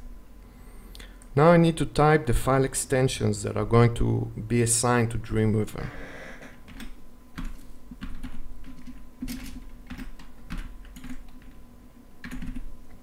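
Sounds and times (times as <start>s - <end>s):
keyboard typing clicks: 6.7s - 11.6s, 12.2s - 12.7s.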